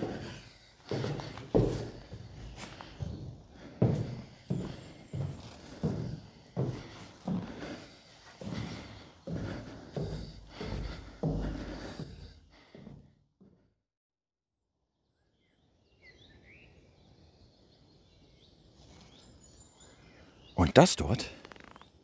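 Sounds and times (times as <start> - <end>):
faint outdoor ambience: 0.0 - 12.8
footsteps walking: 0.0 - 13.0.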